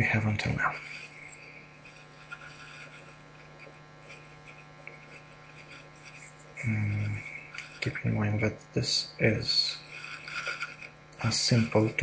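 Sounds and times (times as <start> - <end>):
low hum and hiss: 0.0 - 12.0.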